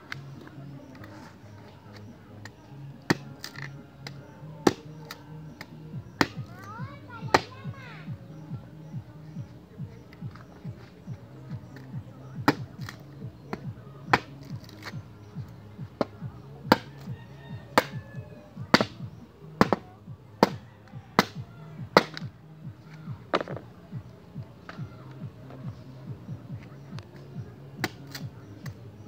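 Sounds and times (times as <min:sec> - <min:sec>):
background music: 0:00.0 - 0:29.0
machete chopping wood: 0:03.1 - 0:05.2, 0:06.2 - 0:06.6, 0:07.3 - 0:07.6, 0:12.4 - 0:15.0, 0:16.0 - 0:17.1, 0:18.7 - 0:19.0, 0:19.6 - 0:20.6, 0:21.2 - 0:22.3, 0:23.3 - 0:23.6, 0:27.8 - 0:28.8.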